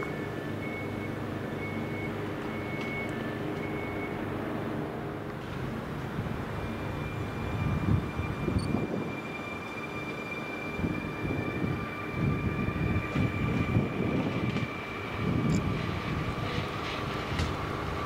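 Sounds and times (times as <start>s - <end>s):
high traction motor whine: 0.0s - 18.0s
train wheels rumbling on rails: 0.0s - 18.0s.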